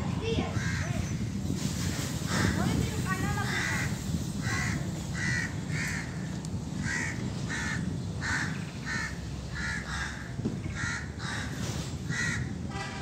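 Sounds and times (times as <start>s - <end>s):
crow cawing: 0.5s - 1.1s, 2.3s - 2.7s, 3.4s - 12.5s.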